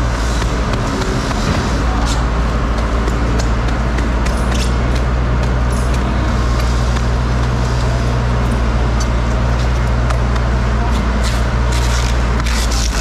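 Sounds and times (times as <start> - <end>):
machinery humming: 0.0 - 13.0.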